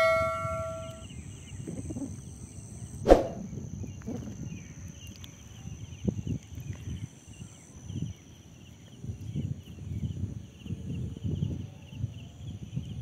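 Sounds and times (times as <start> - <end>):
notification bell chime: 0.0 - 1.0
high-pitched whine: 0.0 - 1.1
low wind rumble: 0.0 - 13.0.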